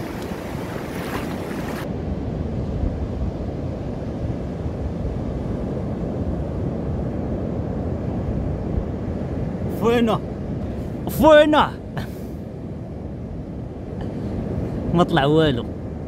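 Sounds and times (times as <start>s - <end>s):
breaking surf rushing: 0.0s - 6.5s
wind buffeting microphone: 0.0s - 16.0s.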